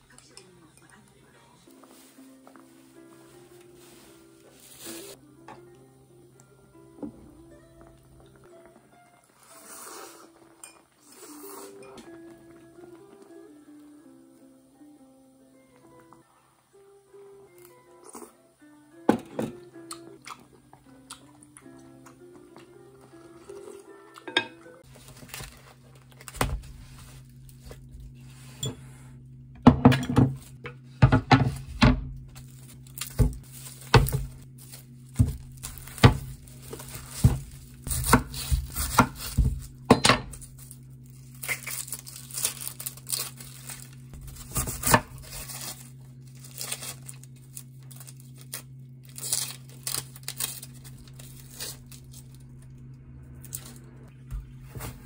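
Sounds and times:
dishes and utensils clinking: 0:10.5 - 0:11.0, 0:24.2 - 0:24.8
packaging crinkling: 0:32.4 - 0:38.5, 0:40.4 - 0:52.4.

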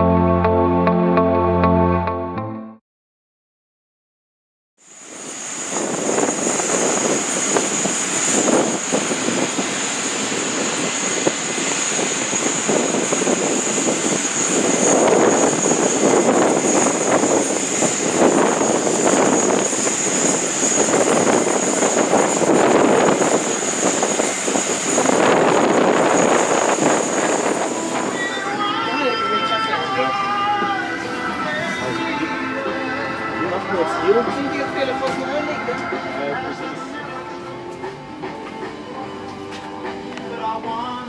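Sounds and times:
jet engine rushing noise: 0:04.8 - 0:36.6
jet engine whine: 0:04.8 - 0:41.0.

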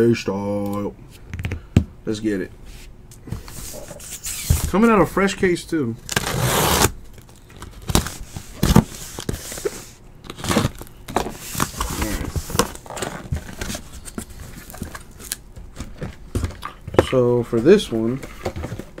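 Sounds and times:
cardboard rasping: 0:06.1 - 0:06.9.

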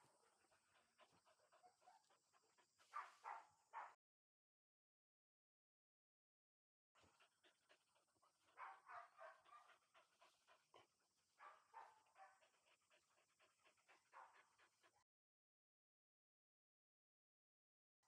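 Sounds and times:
puppy panting: 0:00.0 - 0:04.0, 0:07.0 - 0:15.1.

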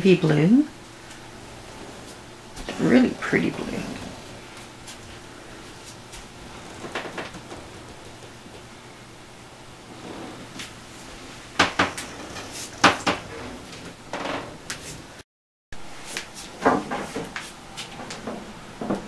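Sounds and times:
sharp knocks and clunks: 0:11.6 - 0:12.1.

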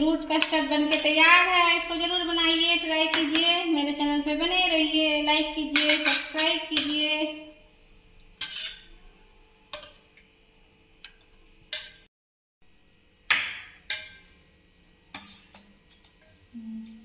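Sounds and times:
steel ladle clinking against pot: 0:13.8 - 0:14.5.

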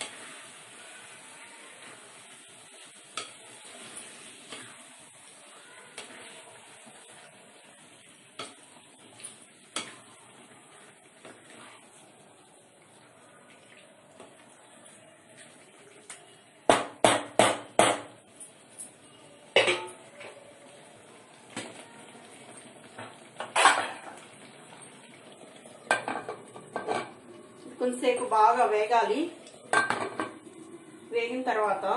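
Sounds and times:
metal cookware clanking: 0:18.4 - 0:20.4, 0:22.9 - 0:24.3, 0:25.9 - 0:27.2, 0:29.7 - 0:30.5.

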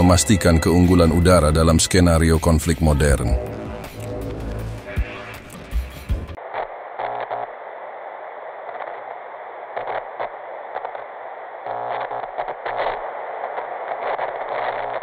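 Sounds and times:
television static hiss: 0:00.0 - 0:03.4, 0:04.0 - 0:15.0
static crackles: 0:00.0 - 0:15.0.

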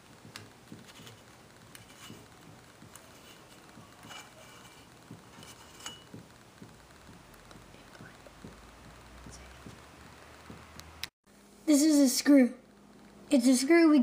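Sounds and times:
light bulb base clicking and scraping: 0:00.3 - 0:06.2.

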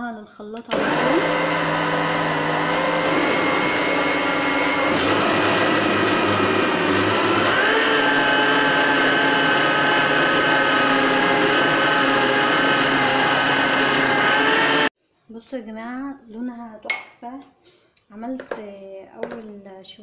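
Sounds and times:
blender motor whining: 0:00.6 - 0:14.9.

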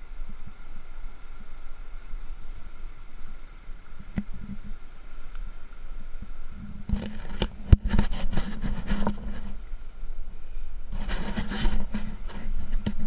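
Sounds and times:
river water rushing: 0:00.0 - 0:13.0
hand knocking and scraping rock: 0:06.7 - 0:09.6, 0:11.0 - 0:13.0.

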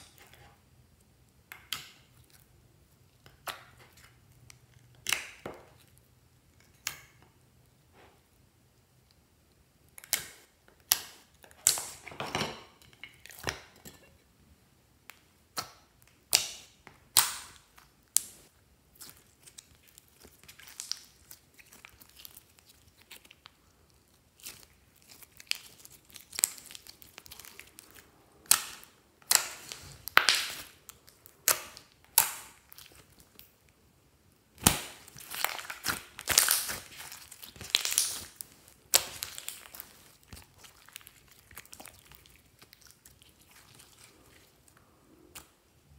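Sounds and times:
slime squishing and popping: 0:24.3 - 0:33.5, 0:34.5 - 0:44.2.

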